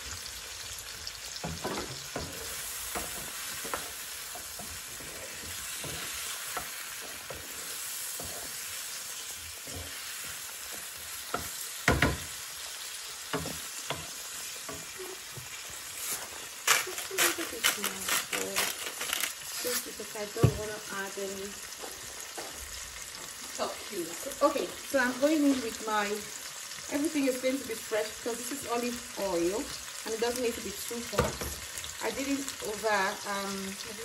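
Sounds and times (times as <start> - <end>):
vegetables sizzling in oil: 0.0 - 34.0
spatula knocking and scraping pan: 1.3 - 16.6, 20.2 - 20.8.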